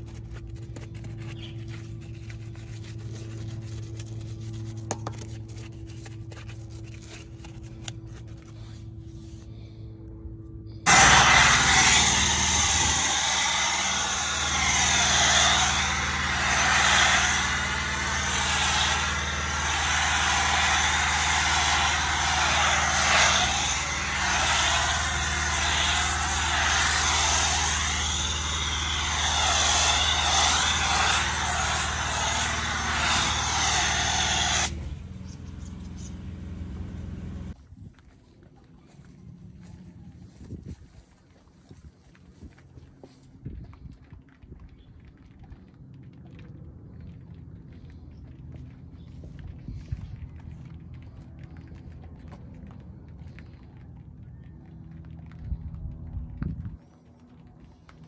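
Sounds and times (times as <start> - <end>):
pump humming: 10.8 - 35.2
pressure washer spray hiss: 10.9 - 34.7.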